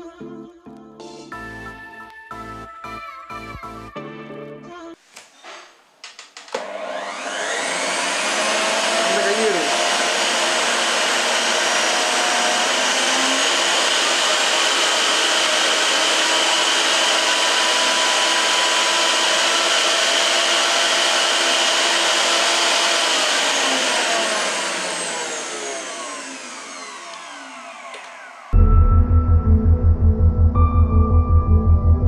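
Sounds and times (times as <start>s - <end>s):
mixer grinder motor whirring: 6.5s - 28.6s.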